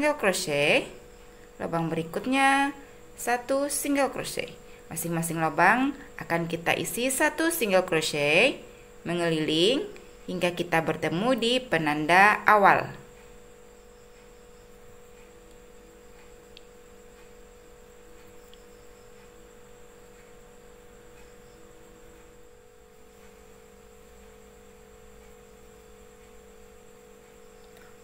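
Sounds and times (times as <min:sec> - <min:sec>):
low electrical hum: 0:00.0 - 0:28.0
faint ticks: 0:13.1 - 0:22.4, 0:23.0 - 0:28.0.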